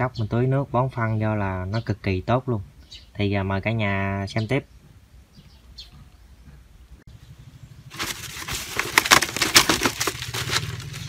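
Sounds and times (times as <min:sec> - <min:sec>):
hands crackling potting materials: 0:07.9 - 0:11.0.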